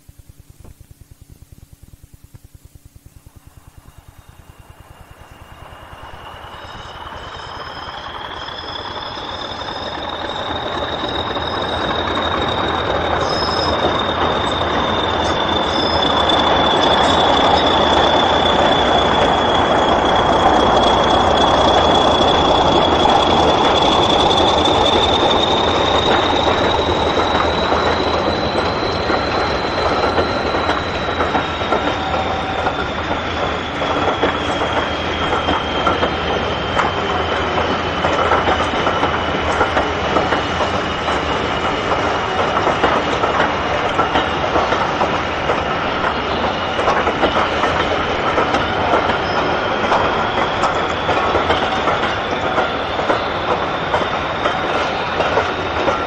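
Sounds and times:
diesel locomotive engine: 0:03.2 - 0:56.0
turbocharger whistle: 0:03.8 - 0:42.6.

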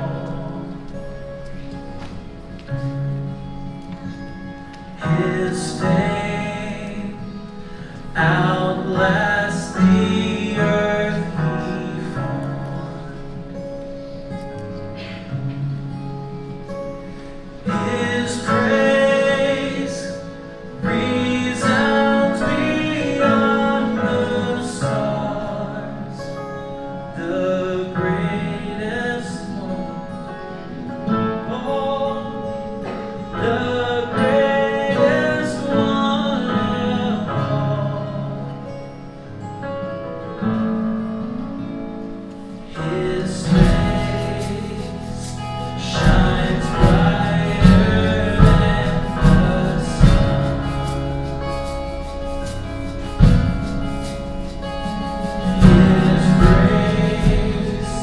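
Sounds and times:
strummed acoustic guitar: 0:00.0 - 0:58.0
person singing: 0:04.9 - 0:13.0, 0:17.6 - 0:38.7, 0:42.6 - 0:58.0
cymbals: 0:42.6 - 0:58.0.

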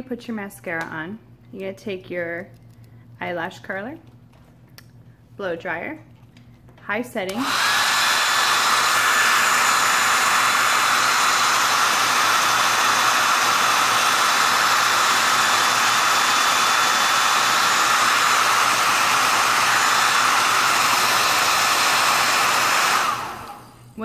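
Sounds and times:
hair dryer running: 0:07.2 - 0:24.0.

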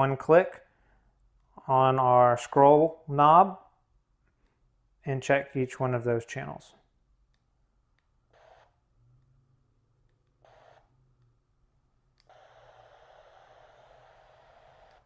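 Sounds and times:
radio static hiss: 0:12.3 - 0:15.0.

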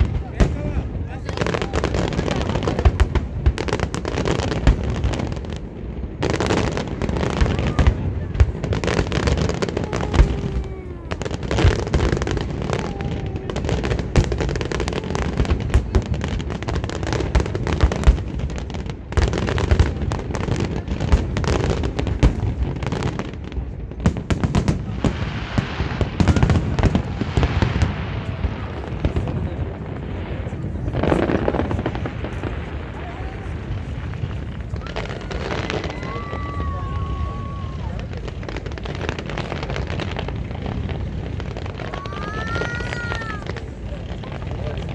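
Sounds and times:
fireworks bursting: 0:00.0 - 0:44.9.

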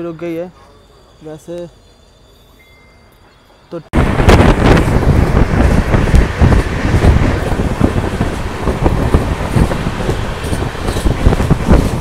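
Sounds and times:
wind buffeting microphone: 0:03.9 - 0:12.0
train wheels clattering on track: 0:04.6 - 0:12.0.

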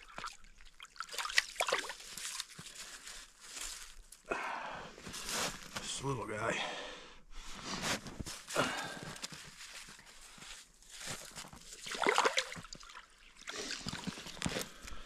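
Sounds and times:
water sloshing: 0:00.0 - 0:02.7, 0:11.2 - 0:14.6
boots crunching in snow: 0:05.0 - 0:05.9, 0:07.5 - 0:11.6.

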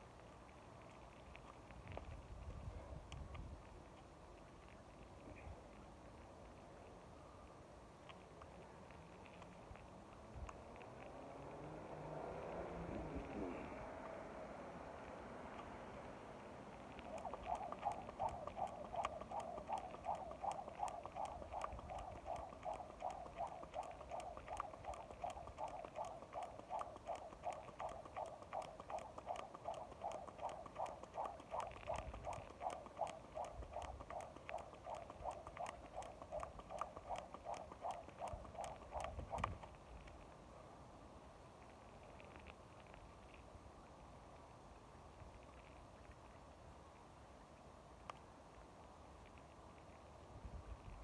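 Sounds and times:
jump rope slapping pavement: 0:16.8 - 0:39.7.

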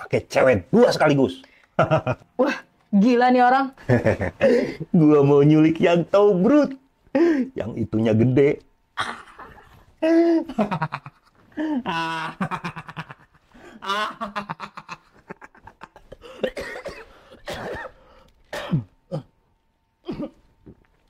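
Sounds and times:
man laughing loudly: 0:01.8 - 0:02.2, 0:03.8 - 0:04.8, 0:09.0 - 0:16.4.

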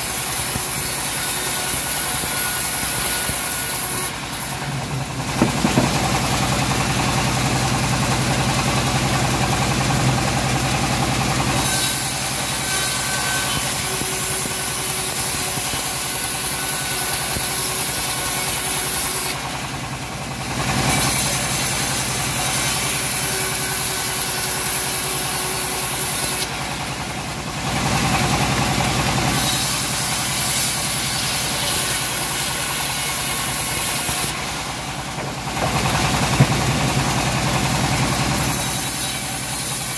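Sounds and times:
bandsaw blade ripping through wood: 0:00.0 - 0:06.4
drive motor drone: 0:04.1 - 0:11.6, 0:34.1 - 0:38.6.

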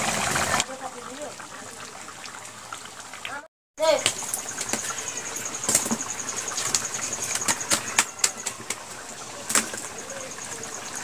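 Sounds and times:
fish frying in hot oil: 0:00.0 - 0:11.0
high insect chirping: 0:03.8 - 0:11.0.

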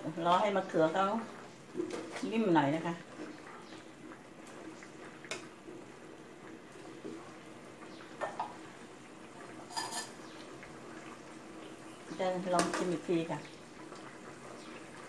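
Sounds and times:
curry simmering and bubbling: 0:00.0 - 0:15.0
utensils knocking against pot: 0:09.7 - 0:10.2.

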